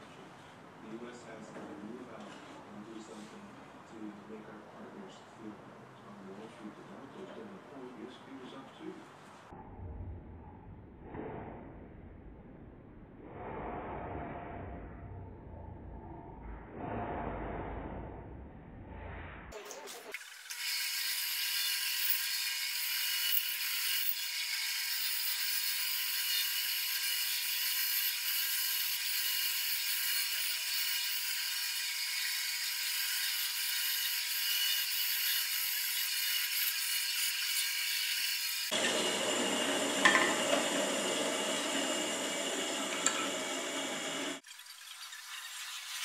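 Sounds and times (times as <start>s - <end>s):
bandsaw cutting wood: 20.5s - 44.4s.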